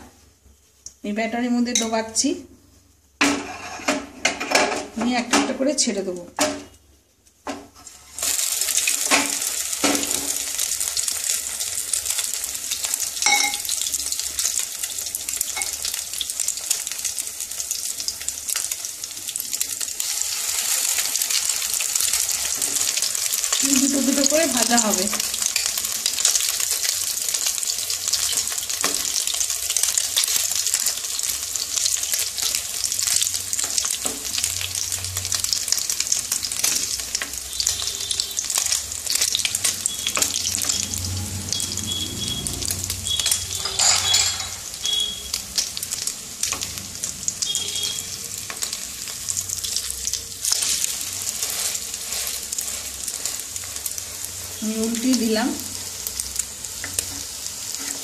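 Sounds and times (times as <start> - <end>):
food sizzling in hot oil: 0.0 - 6.5, 7.4 - 58.0
wooden spatula scraping pan: 3.2 - 4.9, 56.8 - 58.0.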